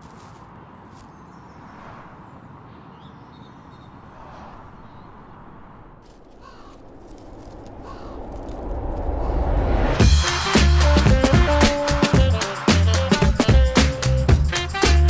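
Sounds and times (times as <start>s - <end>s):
faint bird calls: 6.1s - 9.6s.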